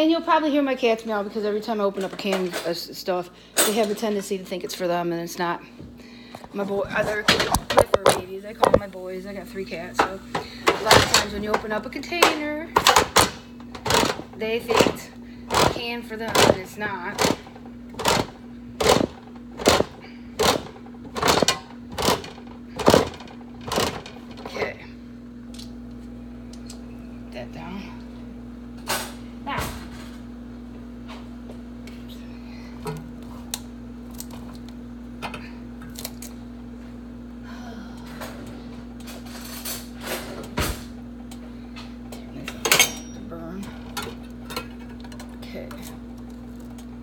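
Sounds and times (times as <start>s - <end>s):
steady low hum: 0.0s - 47.0s
can opener crunching: 12.2s - 24.6s.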